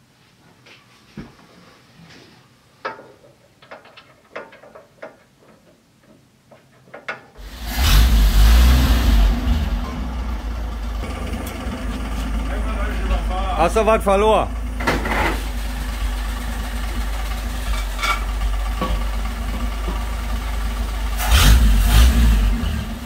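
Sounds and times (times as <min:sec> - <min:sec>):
truck engine running: 0:07.4 - 0:23.0.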